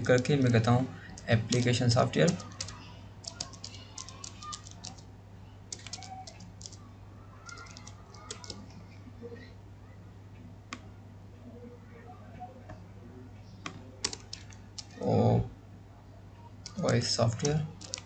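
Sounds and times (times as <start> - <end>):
typing on computer keyboard: 0.0 - 5.0, 5.7 - 6.8, 7.5 - 8.6, 13.6 - 15.0, 16.6 - 18.0.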